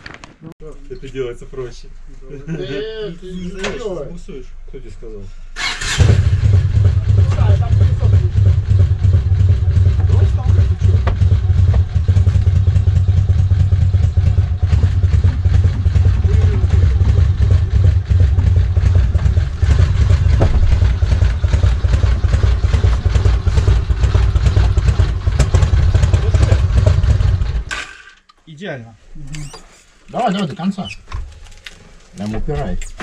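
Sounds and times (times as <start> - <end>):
motorcycle engine running: 5.6 - 27.7.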